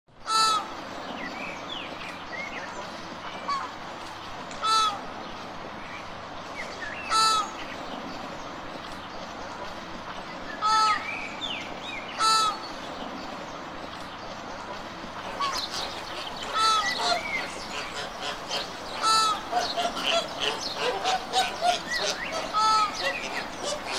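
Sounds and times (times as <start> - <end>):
flamingos honking: 4.6 - 5.0, 12.2 - 12.6, 15.3 - 23.9.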